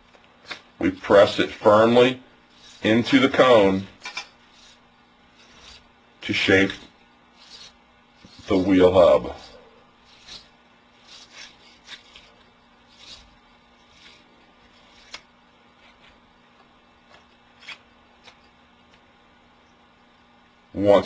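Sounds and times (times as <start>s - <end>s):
sandpaper scraping: 1.2s - 3.8s, 4.4s - 15.2s.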